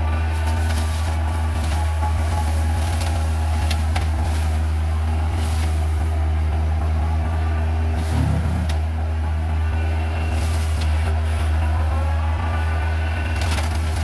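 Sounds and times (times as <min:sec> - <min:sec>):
excavator diesel engine running: 0:00.0 - 0:14.0.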